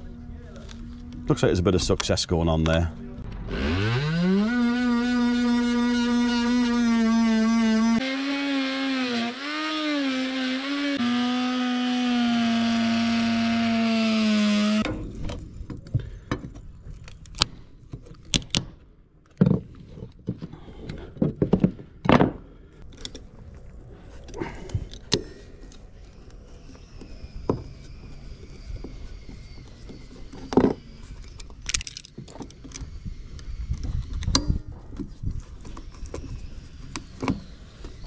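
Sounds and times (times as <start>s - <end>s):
power tool cutting wood: 3.3s - 14.9s.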